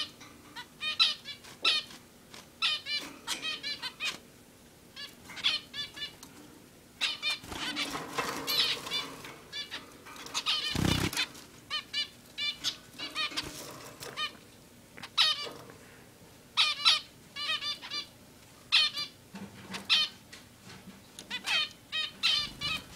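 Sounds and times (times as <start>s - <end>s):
finches beeping calls: 10.4s - 13.5s.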